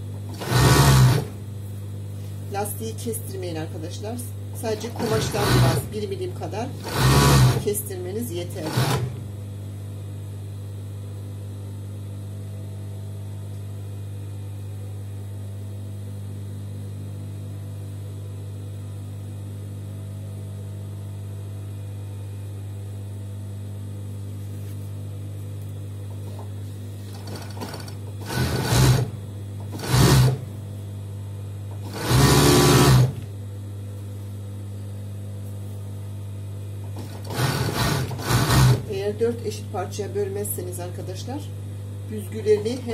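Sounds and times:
sewing machine stitching: 0.3s - 1.4s, 4.8s - 5.9s, 6.8s - 7.7s, 8.6s - 9.2s, 27.1s - 30.5s, 31.8s - 33.2s, 37.0s - 38.9s
overlock machine humming: 25.8s - 33.8s.

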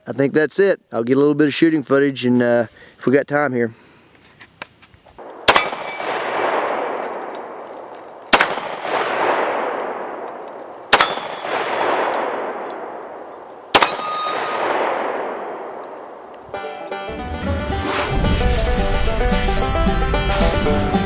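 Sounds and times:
gunshots with echo: 5.2s - 16.3s
steel targets ringing: 5.5s - 8.3s, 10.6s - 13.0s, 13.7s - 15.3s.

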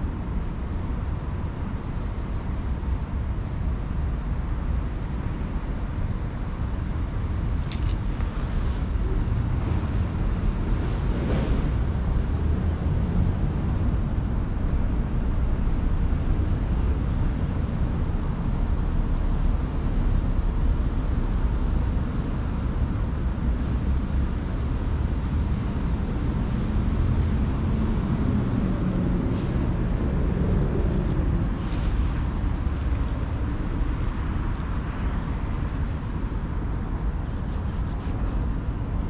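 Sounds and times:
low outdoor rumble: 0.0s - 39.0s.

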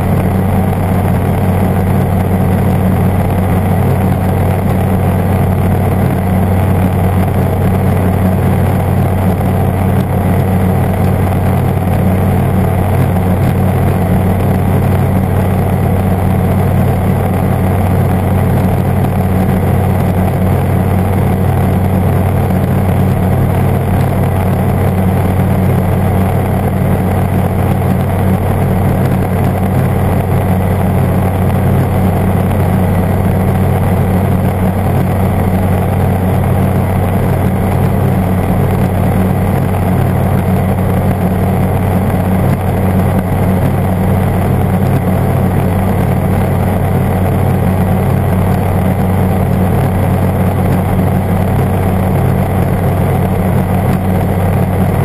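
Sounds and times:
aircraft engine and propeller droning: 0.0s - 55.0s.

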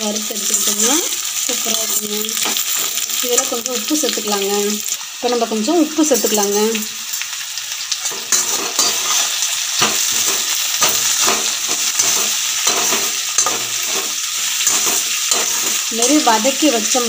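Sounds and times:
vegetables sizzling in oil: 0.0s - 17.0s
spatula scraping and tapping pan: 8.0s - 16.6s.

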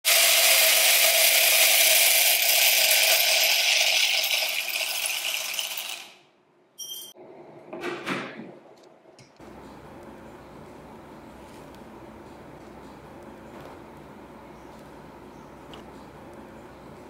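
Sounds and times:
coffee beans rattling into hopper: 0.1s - 6.1s.

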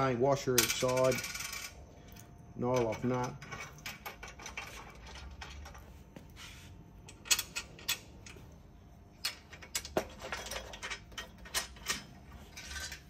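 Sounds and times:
metal clicks of bolts and nuts: 7.1s - 13.0s.

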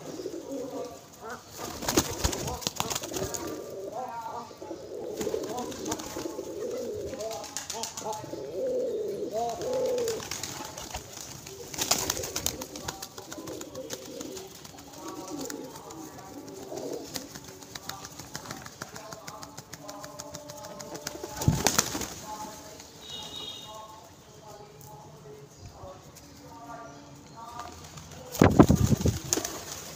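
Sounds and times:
pigeons cooing: 0.0s - 22.8s
pigeon wings flapping: 1.6s - 3.6s, 5.2s - 8.2s, 9.4s - 22.6s, 27.6s - 29.9s.

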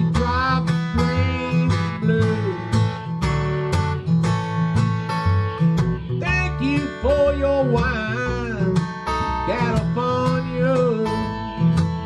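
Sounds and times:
acoustic guitar strumming chords: 0.0s - 12.0s
lead melody with bent notes: 0.0s - 12.0s
washtub bass notes: 0.0s - 12.0s.

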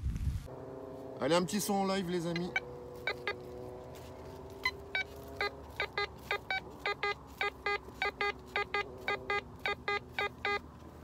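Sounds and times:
metal detector beeps: 2.3s - 3.6s, 4.6s - 10.7s.

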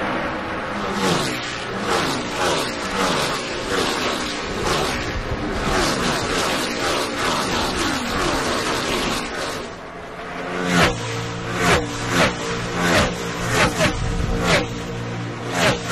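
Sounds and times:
race car engines passing: 0.0s - 15.9s.

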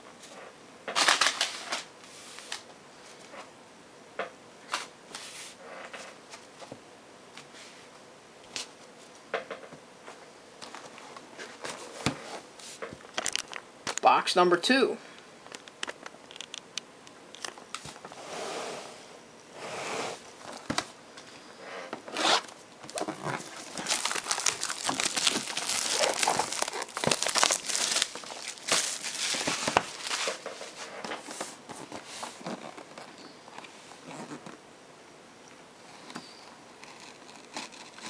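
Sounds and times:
plastic wrap crackling and crinkling: 22.5s - 33.6s, 36.8s - 38.0s.

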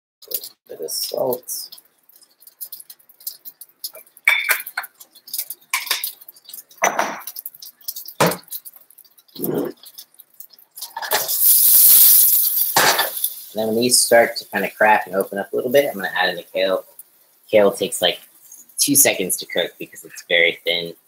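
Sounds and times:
metal fork clinking on dishes: 4.2s - 6.2s
loud hiss: 11.1s - 15.1s.

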